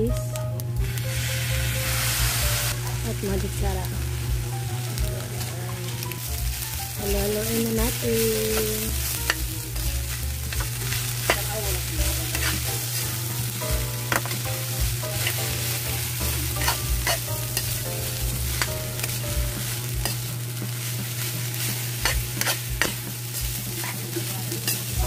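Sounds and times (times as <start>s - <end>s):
rice sizzling in a wok: 0.0s - 25.0s
steady low hum: 0.0s - 25.0s
metal spatula scraping a pan: 10.5s - 13.0s, 16.5s - 17.8s, 21.5s - 23.0s.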